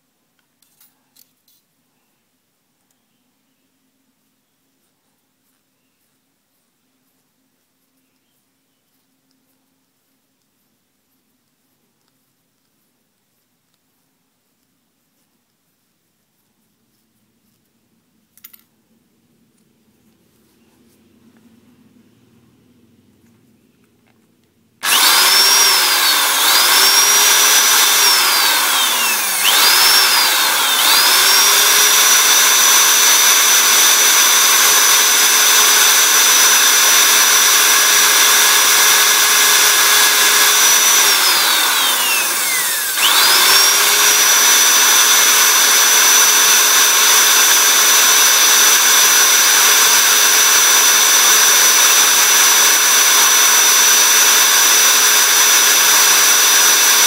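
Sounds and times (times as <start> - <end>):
electric drill high whine: 24.8 - 57.0.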